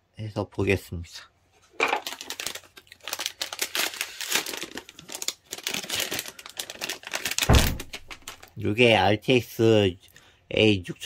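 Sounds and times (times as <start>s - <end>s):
plastic wrapping crinkling: 1.7s - 8.6s
thump: 7.5s - 8.1s.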